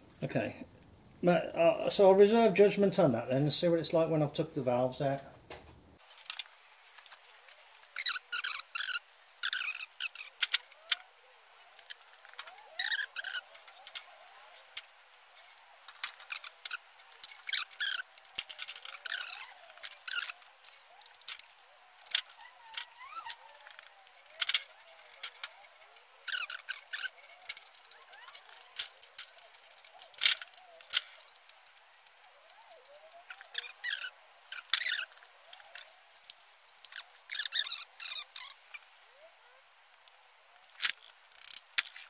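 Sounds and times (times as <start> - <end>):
metal tools clinking: 6.1 - 38.6.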